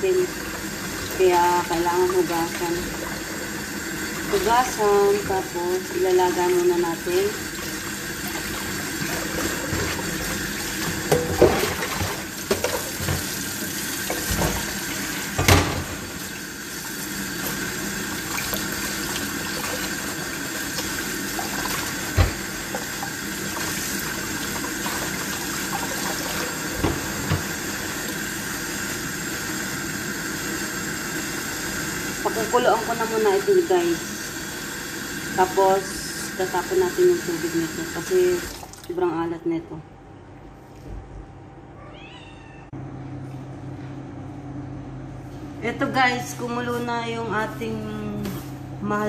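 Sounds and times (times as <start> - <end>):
tap running into basin of water: 0.4 - 29.4.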